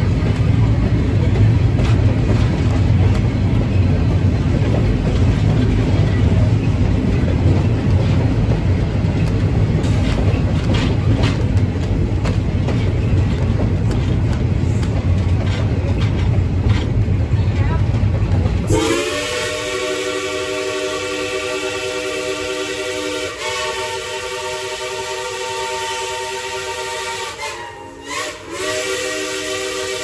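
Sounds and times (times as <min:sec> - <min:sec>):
train rumbling: 0:00.0 - 0:30.0
running gear clicks and knocks: 0:07.3 - 0:17.1.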